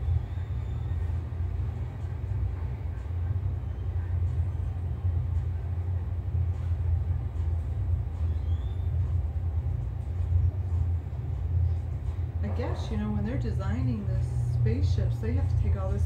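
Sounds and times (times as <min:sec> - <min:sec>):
centrifuge low rumble: 0:00.0 - 0:16.0.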